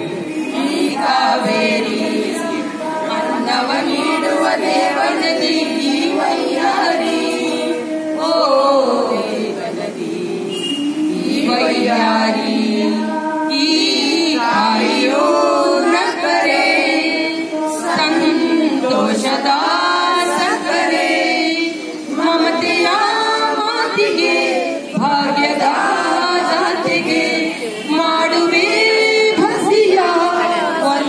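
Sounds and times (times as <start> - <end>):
children and women singing: 0.0 - 31.0.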